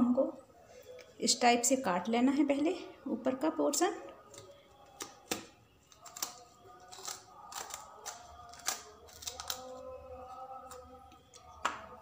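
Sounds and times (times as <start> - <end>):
knife cutting pepper cracks: 4.3 - 9.8.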